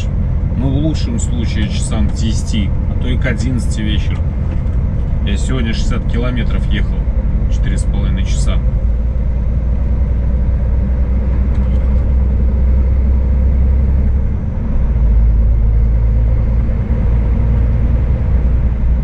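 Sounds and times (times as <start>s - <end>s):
road noise: 0.0s - 19.0s
truck engine drone: 0.0s - 19.0s.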